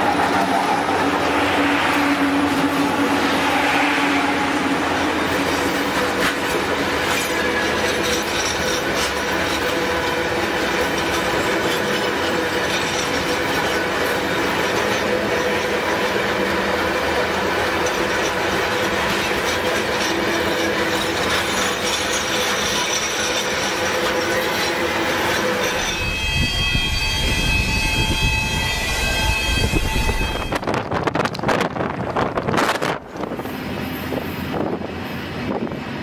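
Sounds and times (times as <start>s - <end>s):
freight train wheels rumbling: 0.0s - 36.0s
high ringing wheel squeal: 10.9s - 16.0s, 17.8s - 30.8s.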